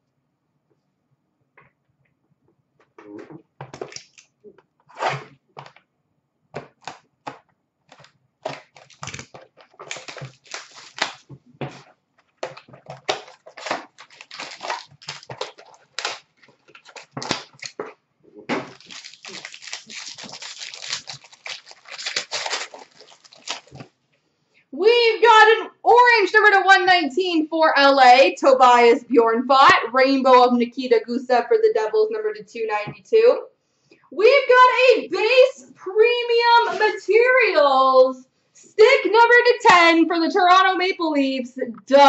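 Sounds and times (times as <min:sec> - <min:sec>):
foil wrapper tearing and crinkling: 0:06.8 - 0:11.8, 0:12.4 - 0:17.8, 0:18.6 - 0:23.9.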